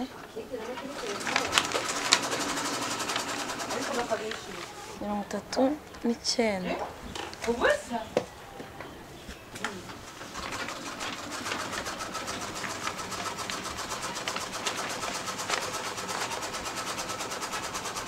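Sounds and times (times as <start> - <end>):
sewing machine stitching: 0.7 - 4.8, 10.1 - 18.0.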